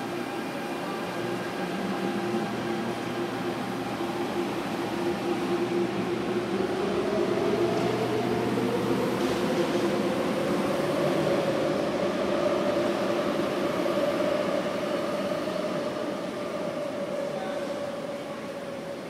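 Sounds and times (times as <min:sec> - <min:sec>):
electric train hum: 0:00.0 - 0:19.0
rising train motor whine: 0:00.0 - 0:19.0.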